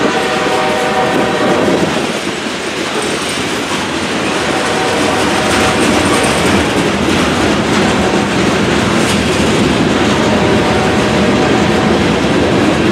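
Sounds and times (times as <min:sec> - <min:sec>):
freight train wheels clacking: 0:00.0 - 0:12.9.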